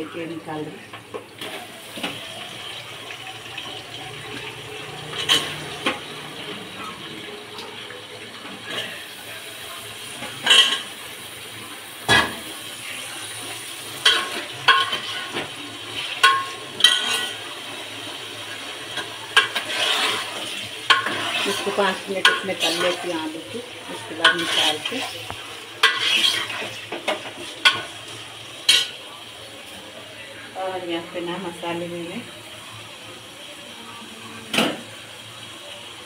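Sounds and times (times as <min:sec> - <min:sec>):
metal utensils clinking against pot: 0:05.1 - 0:06.1, 0:14.0 - 0:17.4, 0:18.9 - 0:28.0.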